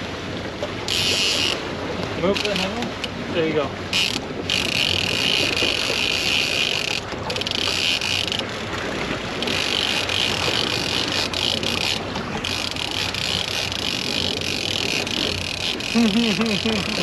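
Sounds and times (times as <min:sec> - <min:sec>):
fishing reel ratcheting whir: 0:00.9 - 0:01.6, 0:03.9 - 0:08.5, 0:09.4 - 0:17.0.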